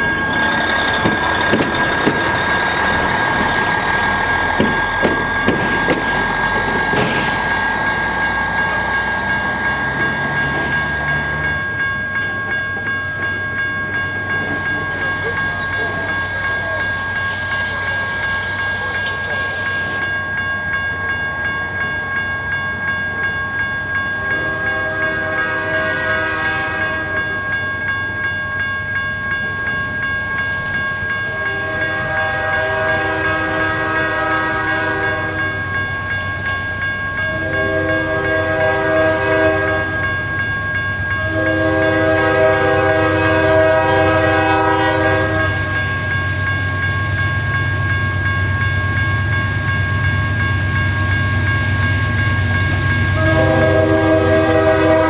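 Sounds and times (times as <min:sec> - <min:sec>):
train rumbling: 0:00.0 - 0:55.0
locomotive air horn blasts: 0:24.5 - 0:27.1, 0:31.3 - 0:35.4, 0:37.3 - 0:40.0, 0:41.2 - 0:45.6, 0:53.2 - 0:55.0.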